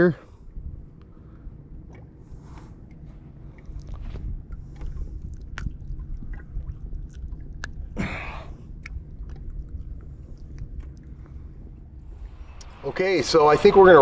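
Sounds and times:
wind rumble on microphone: 0.2 - 14.0.

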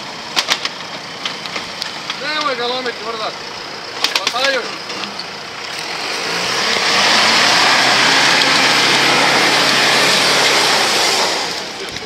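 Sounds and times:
engine hum: 0.0 - 12.0
loud rushing noise: 5.7 - 12.0.

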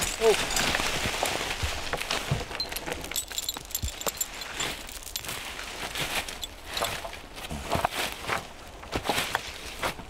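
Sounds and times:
harness jingling: 0.0 - 7.1
crackles of brushwood underfoot: 0.0 - 10.0.

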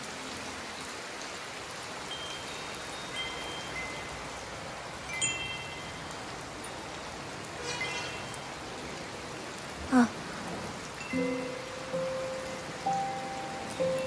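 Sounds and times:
steady rain falling: 0.0 - 14.0
high chimes: 2.1 - 4.4, 5.0 - 8.8, 11.0 - 14.0.

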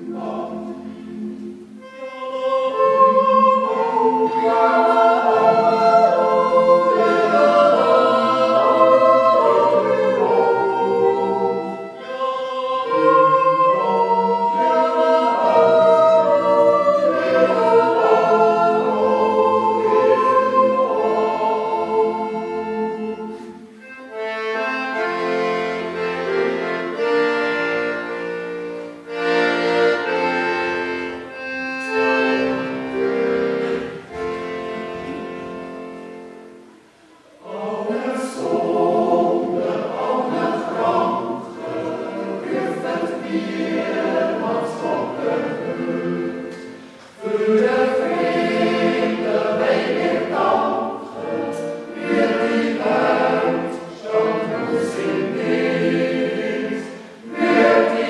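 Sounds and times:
choir yodeling in parts: 0.0 - 58.0.

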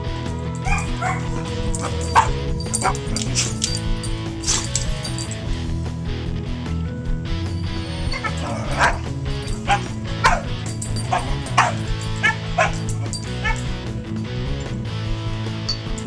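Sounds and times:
background music: 0.0 - 16.0
puppy yipping and barking: 0.6 - 3.8, 4.4 - 5.2, 8.1 - 13.7.

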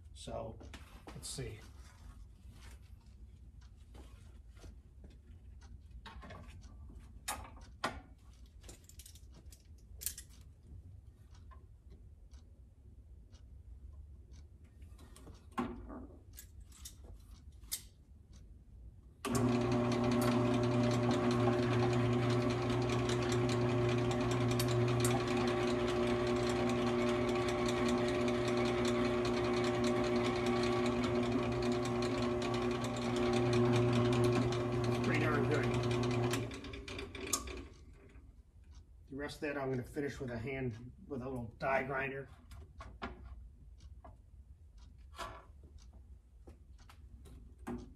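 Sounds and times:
drill press motor humming: 19.2 - 38.2
drill cutting through aluminium: 19.5 - 36.5.

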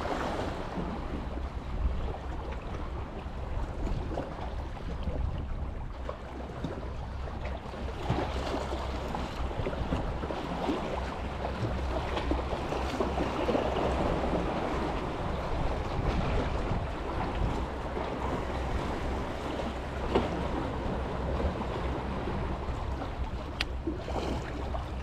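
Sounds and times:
sea water lapping: 0.0 - 25.0
wind on microphone: 9.1 - 25.0.

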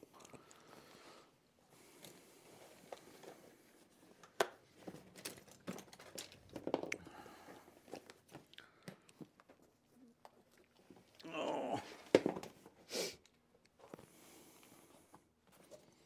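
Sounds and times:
objects being handled: 1.8 - 10.0.

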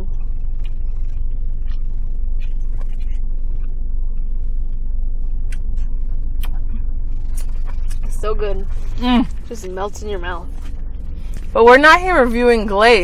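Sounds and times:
car cabin rumble: 0.0 - 13.0
mouth smacks from eating: 5.5 - 6.8.

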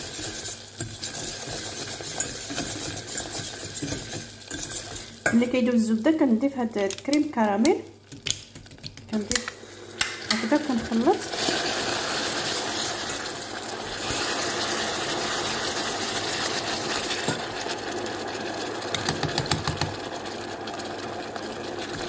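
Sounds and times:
caramel hissing and bubbling: 0.0 - 5.3, 7.9 - 22.0
whisk rattling against pan: 0.0 - 5.3.

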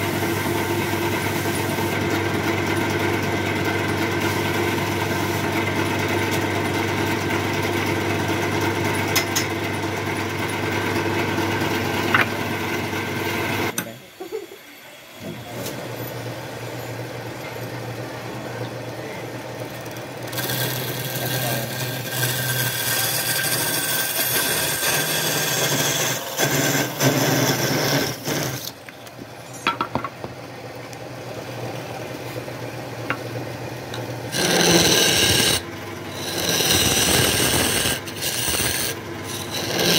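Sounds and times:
wood lathe motor humming: 0.0 - 28.9, 33.8 - 39.9
chisel scraping spinning log: 19.6 - 28.9, 33.9 - 39.9.

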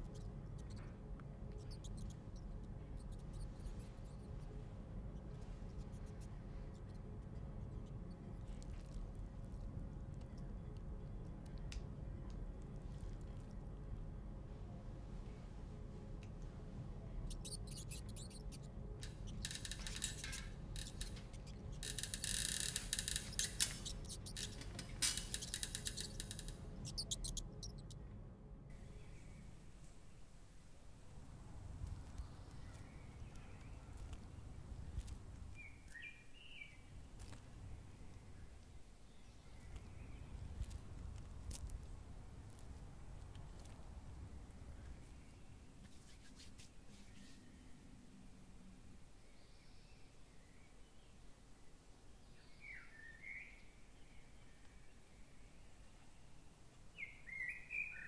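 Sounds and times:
rat squeaking: 0.0 - 9.0, 17.2 - 28.0, 31.8 - 37.5
low steady hum: 0.0 - 52.5
dry food crackling between fingers: 17.2 - 28.0, 31.5 - 45.0.

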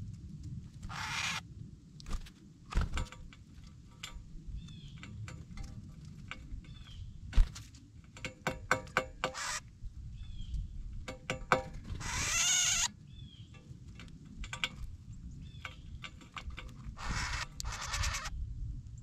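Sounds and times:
high bird chip calls: 0.9 - 1.4, 9.3 - 10.7, 12.0 - 13.6, 17.0 - 18.3
beaks pecking seed on metal pan: 2.0 - 9.7, 10.5 - 18.3
bird wings rushing: 2.1 - 3.2, 7.3 - 7.8.

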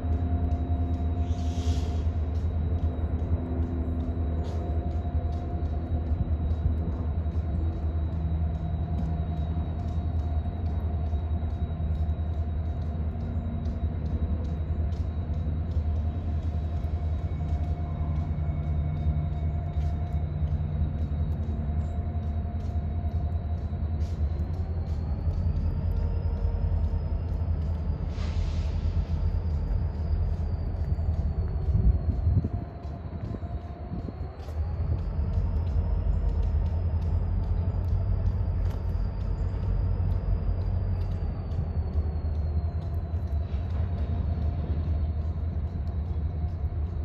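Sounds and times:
diesel locomotive engine rumble: 0.0 - 47.0
faint high whine: 0.0 - 47.0.

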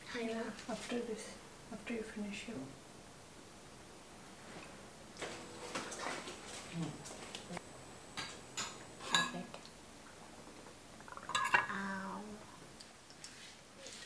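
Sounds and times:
cutlery clinking on ceramic dishes: 8.2 - 9.4, 11.3 - 11.7.

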